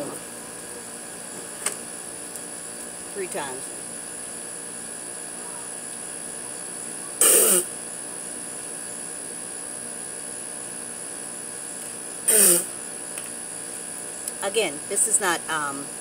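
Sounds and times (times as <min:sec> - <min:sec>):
mouth spray hissing: 0:07.2 - 0:07.7, 0:12.3 - 0:12.7.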